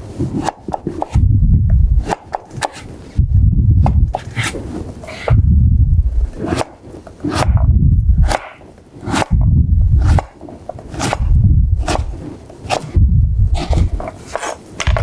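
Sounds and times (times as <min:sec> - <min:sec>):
knife chopping on cutting board: 0:02.0 - 0:02.8, 0:07.3 - 0:09.4, 0:10.0 - 0:13.0.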